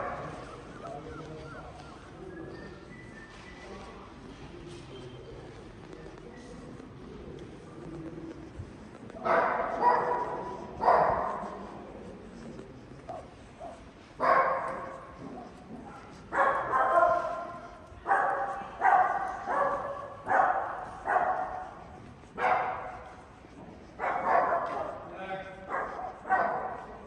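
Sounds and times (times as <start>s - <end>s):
dog barking: 0.0s - 1.9s, 9.2s - 11.6s, 13.1s - 23.2s, 24.0s - 25.0s, 25.7s - 27.0s.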